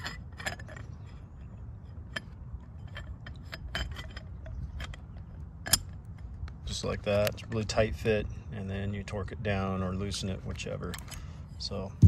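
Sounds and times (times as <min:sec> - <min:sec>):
metal parts clicking and knocking: 0:00.0 - 0:06.4.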